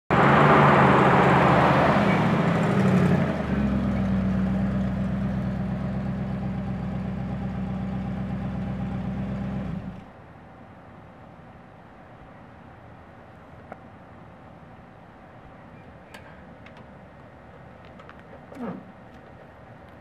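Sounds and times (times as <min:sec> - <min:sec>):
car engine idling: 0:00.2 - 0:10.1.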